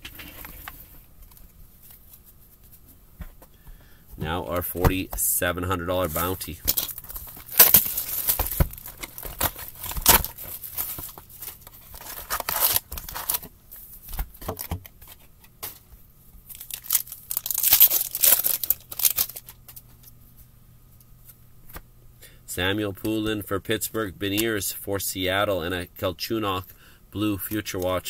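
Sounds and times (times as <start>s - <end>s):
foil wrappers tearing and crinkling: 6.2s - 13.5s, 16.5s - 19.8s.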